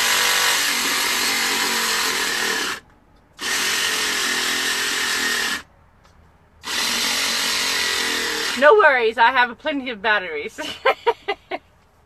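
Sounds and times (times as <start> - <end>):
small saw cutting pumpkin: 0.0 - 2.8, 3.4 - 5.7, 6.6 - 8.6.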